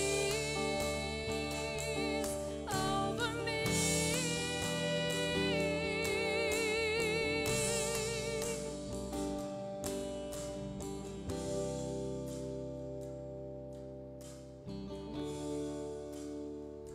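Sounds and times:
woman singing with vibrato: 0:00.0 - 0:08.8
worship band playing slow song: 0:00.0 - 0:16.9.

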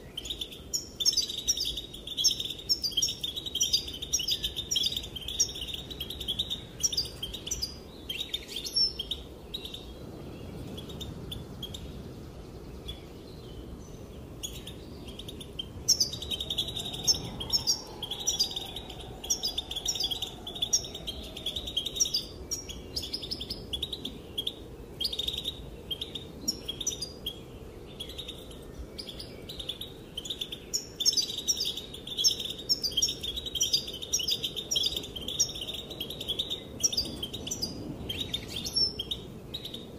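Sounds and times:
goldfinch twittering: 0:14.4 - 0:27.4.

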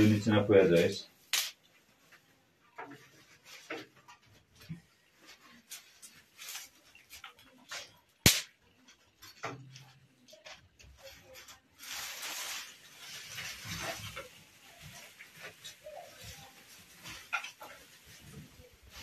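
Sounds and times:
plastic sack rustling: 0:03.2 - 0:08.0, 0:11.0 - 0:19.0
dry twigs snapping and crackling: 0:05.7 - 0:09.6.

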